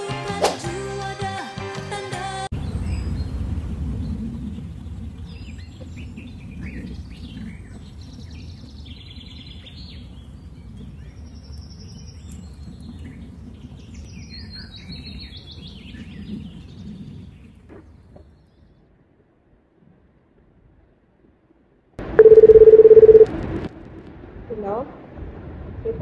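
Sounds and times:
low background rumble: 0:02.5 - 0:26.0
birds chirping: 0:02.6 - 0:18.8.

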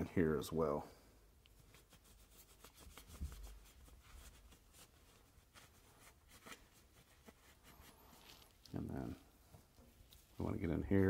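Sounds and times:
cloth rubbing and scraping metal: 0:01.6 - 0:11.0.

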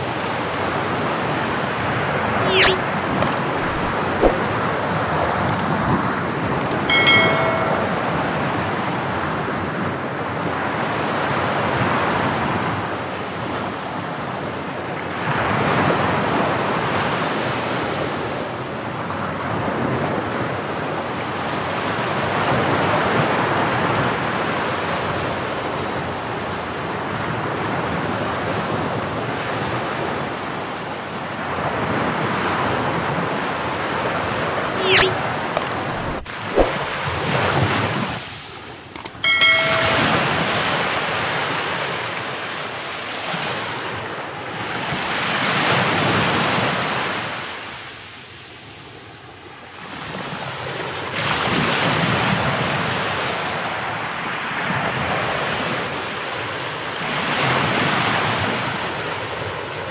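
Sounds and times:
short high-pitched squeak: 0:02.4 - 0:04.5, 0:06.9 - 0:08.0, 0:34.8 - 0:35.2.

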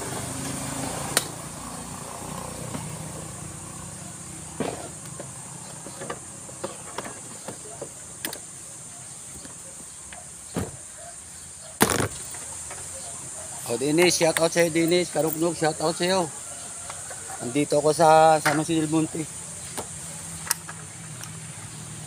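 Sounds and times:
high insect buzz: 0:00.0 - 0:13.9
vehicle engine hum: 0:00.0 - 0:22.0.

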